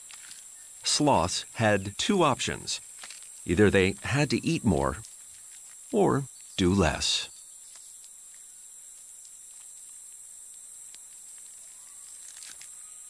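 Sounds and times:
insect chorus buzzing drone: 0.0 - 13.0
faint ticks: 7.6 - 12.8.

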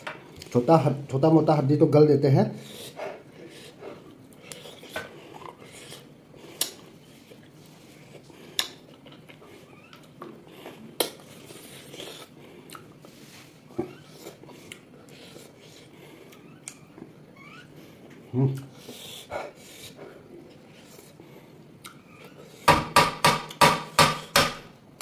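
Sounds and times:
person chewing and biting: 4.0 - 13.0, 13.8 - 17.2.

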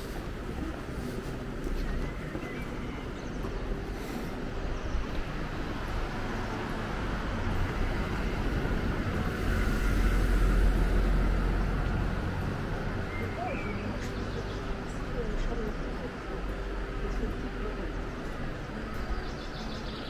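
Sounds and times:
car engine approaching: 4.7 - 20.0.

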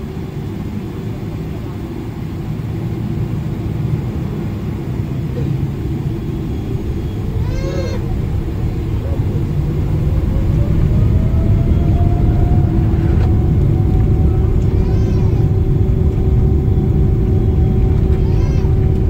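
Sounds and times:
airplane cabin engine rumble: 0.0 - 19.0
engine whine rising: 4.7 - 19.0
brief high cry: 7.4 - 8.2.

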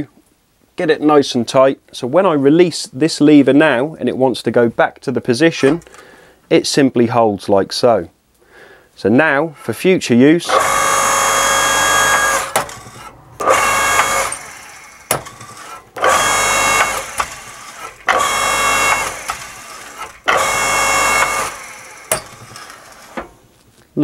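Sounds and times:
electric motor and hydraulic pump: 10.5 - 23.4
sharp clicks: 15.1 - 20.6.

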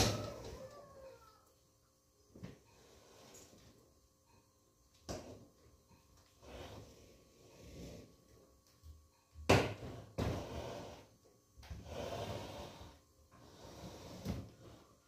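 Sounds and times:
refrigerator scraping over tiles: 6.4 - 8.2, 9.8 - 11.1, 11.8 - 15.0.

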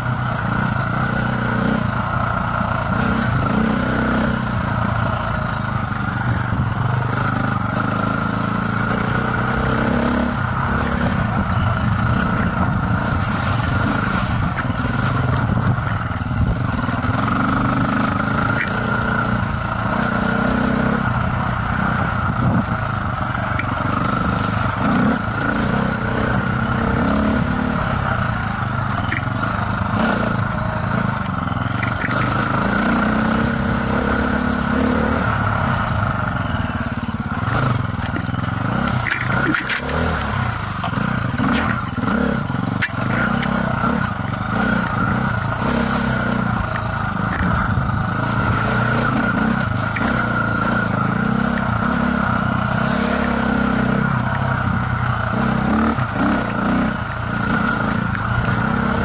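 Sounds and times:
dirt bike engine revving: 0.0 - 59.0
sharp clicks and scrapes: 37.5 - 41.8.

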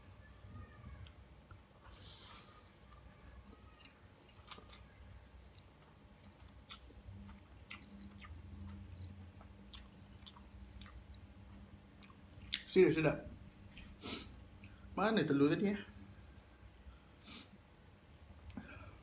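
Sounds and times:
chewing noodles: 2.2 - 11.2.

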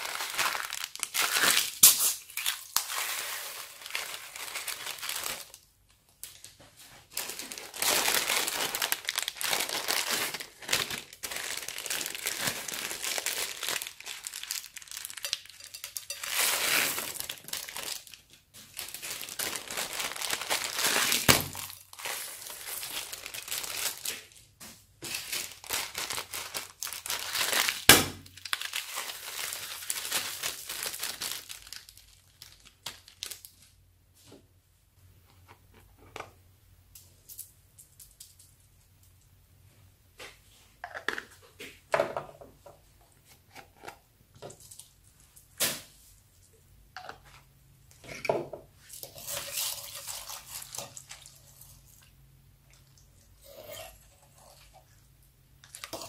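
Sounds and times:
plastic bags crinkling: 0.0 - 33.8, 55.6 - 56.0
plastic pieces pouring into bowl: 7.3 - 18.1.

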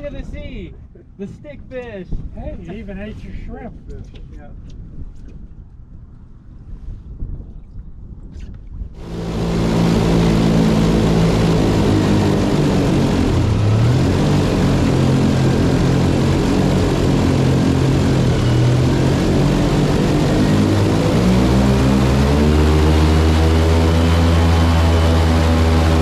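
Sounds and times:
airboat engine drone: 9.0 - 26.0.

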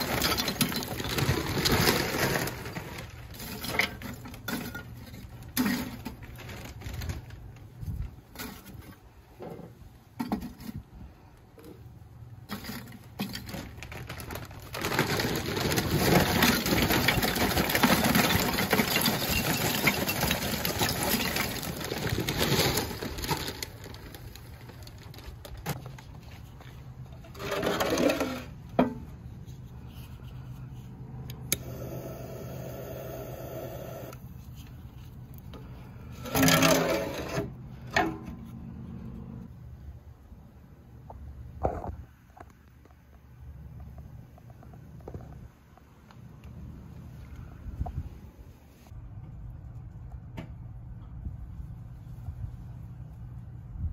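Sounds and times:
charcoal pieces clinking and rattling: 14.8 - 24.2.

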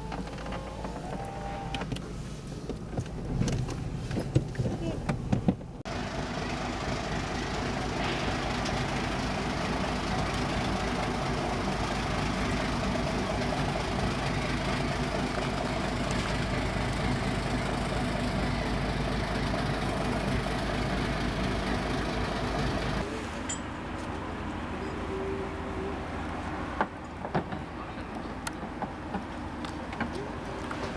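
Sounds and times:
boat engine idling: 5.0 - 23.1.

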